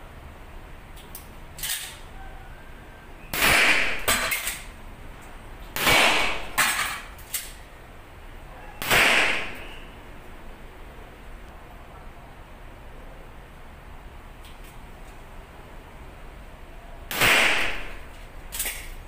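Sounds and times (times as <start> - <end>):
pistol shots: 3.3 - 4.6, 5.8 - 6.7, 8.8 - 9.8, 17.1 - 18.8
faint sharp cracks: 8.8 - 9.8.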